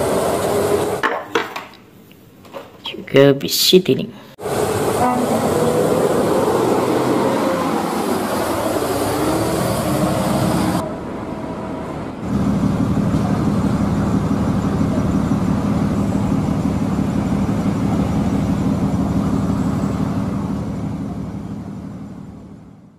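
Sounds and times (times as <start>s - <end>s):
bus engine running: 0.0s - 1.0s, 4.4s - 22.9s
tyres hissing on wet road: 0.0s - 1.0s, 4.4s - 10.8s
diesel engine low hum: 4.4s - 22.9s.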